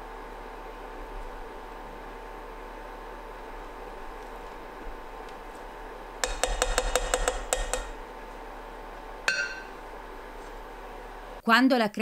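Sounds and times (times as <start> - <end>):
faint steady hum: 0.0 - 12.0
spatula knocking in saucepan: 6.2 - 8.2, 9.2 - 10.0.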